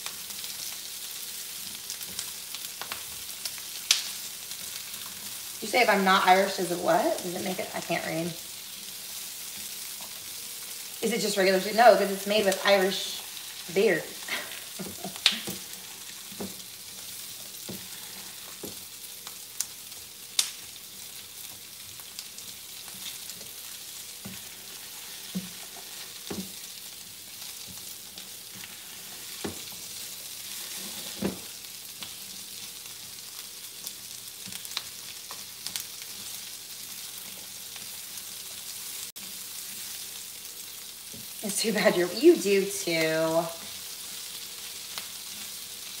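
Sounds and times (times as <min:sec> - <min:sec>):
onions sizzling in oil: 0:00.0 - 0:46.0
spatula scraping and tapping pan: 0:14.7 - 0:18.9, 0:24.2 - 0:26.7.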